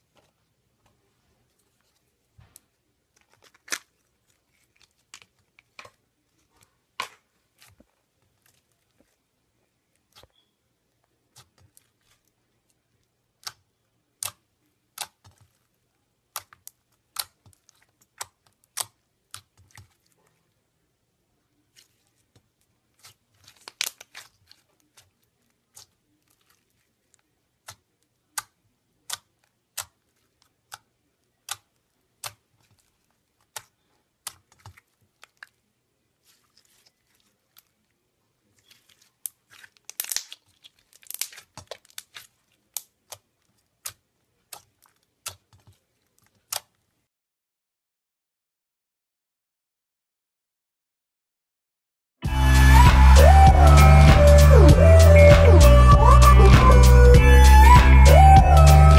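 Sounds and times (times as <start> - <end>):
slime sticky clicks and pops: 39.9 - 40.4.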